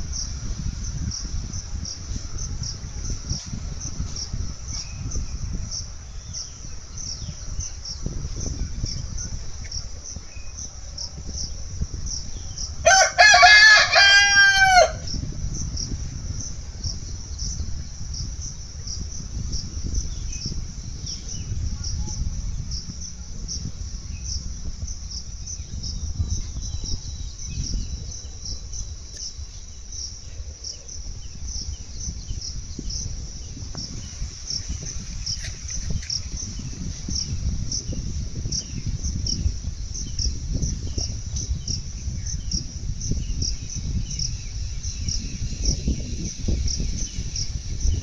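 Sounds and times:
insects chirring: 0:00.0 - 0:48.0
rooster crowing: 0:12.8 - 0:15.1.

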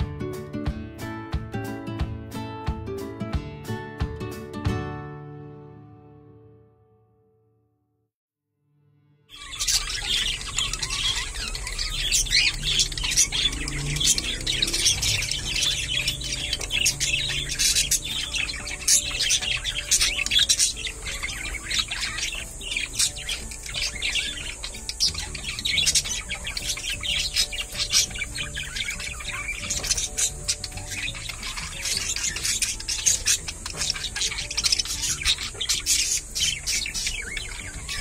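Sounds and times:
budgerigars chattering: 0:09.3 - 0:38.0.

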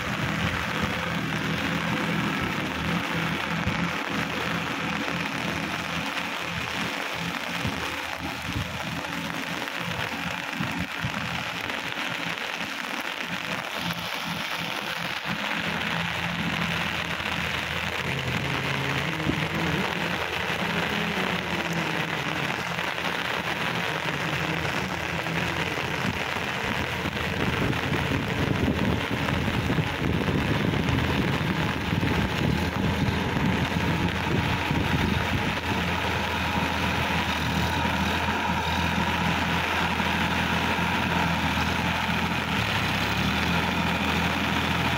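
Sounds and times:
rain falling on a field: 0:00.0 - 0:44.9
tractor diesel engine under load: 0:00.0 - 0:44.9.

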